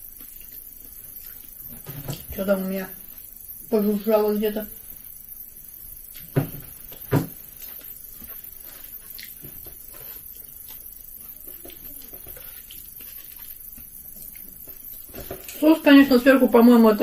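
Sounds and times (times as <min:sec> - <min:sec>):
person chewing: 0:00.1 - 0:01.6, 0:07.6 - 0:15.1.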